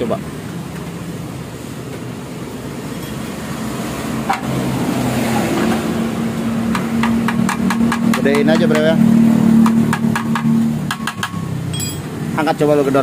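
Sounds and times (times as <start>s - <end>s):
metal tap on muffler: 6.7s - 9.0s, 9.6s - 12.2s.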